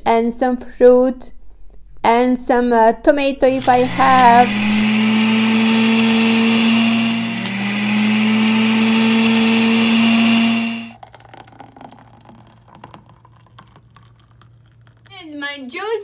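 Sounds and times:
electric juicer motor running: 3.5s - 11.0s.

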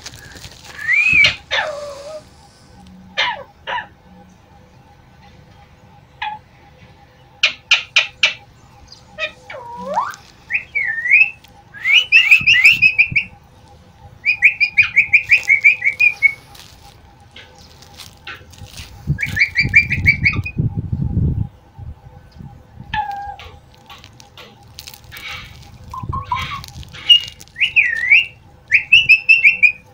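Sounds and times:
parakeets calling: 7.3s - 20.5s, 23.0s - 29.9s.

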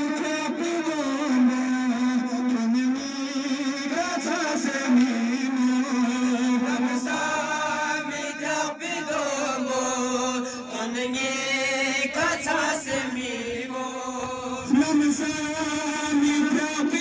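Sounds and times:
men chanting a lament: 0.0s - 17.0s.

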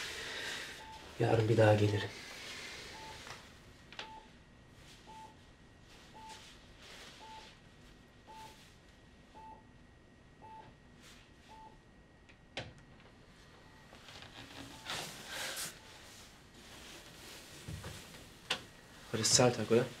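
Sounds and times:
patient monitor beeping: 0.1s - 4.4s, 5.0s - 10.8s, 11.4s - 11.8s, 13.6s - 16.4s.

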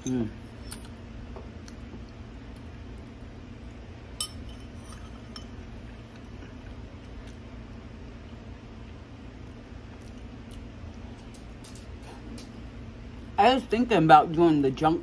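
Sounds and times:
metal fork clinking on ceramic bowl: 4.2s - 5.6s.

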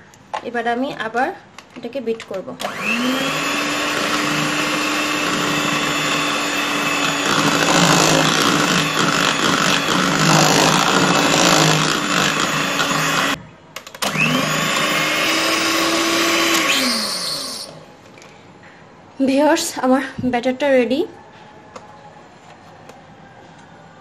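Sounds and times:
electric hand mixer whirring: 2.6s - 13.4s, 14.0s - 17.8s.

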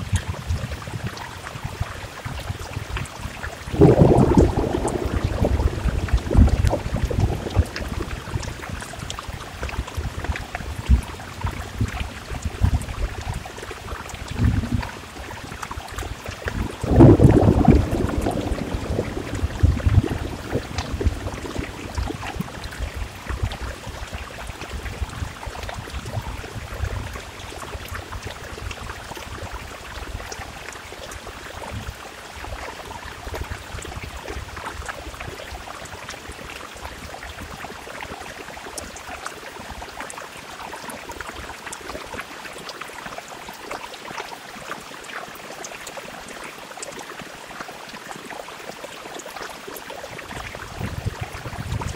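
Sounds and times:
rain pattering on window glass: 0.0s - 51.9s
low thunder rumble: 3.7s - 9.3s, 16.5s - 24.0s, 50.3s - 51.9s.

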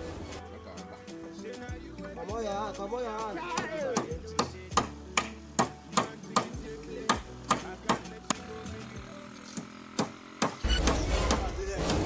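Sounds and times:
background music: 0.0s - 12.0s
hammer striking nails into wood: 3.5s - 8.5s, 9.5s - 11.5s.

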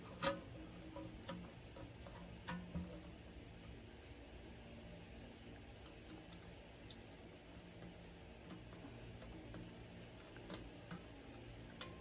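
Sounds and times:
small metallic clicks and taps: 5.8s - 12.0s.

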